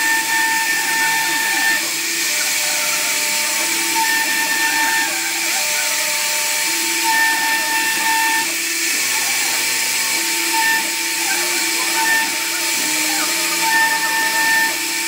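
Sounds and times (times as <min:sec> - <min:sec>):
motor tones stepping in pitch: 0:00.0 - 0:15.0
router spindle whine and hiss: 0:00.0 - 0:15.0.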